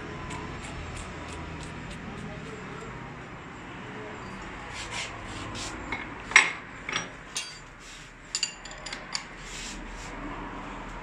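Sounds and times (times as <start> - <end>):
spanner clinking on steel parts: 5.9 - 7.7, 8.3 - 9.3.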